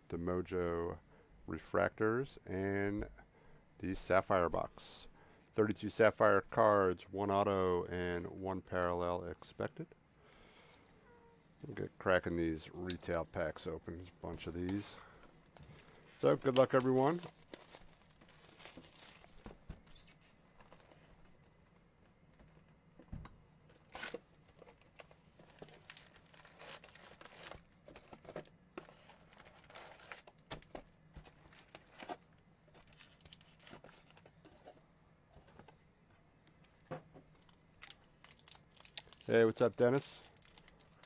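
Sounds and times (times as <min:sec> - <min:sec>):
foil wrappers crinkling: 0:15.6 - 0:19.5, 0:23.8 - 0:34.3, 0:37.4 - 0:41.0.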